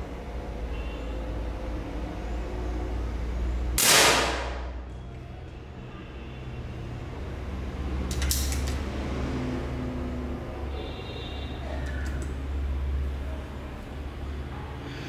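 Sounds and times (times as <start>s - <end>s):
air pistol shot: 3.8s - 4.8s.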